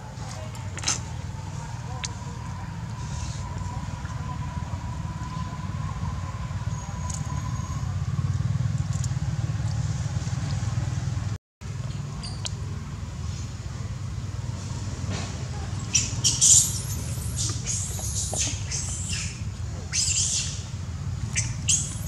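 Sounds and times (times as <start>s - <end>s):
baby monkey squeaking: 15.8s - 22.0s.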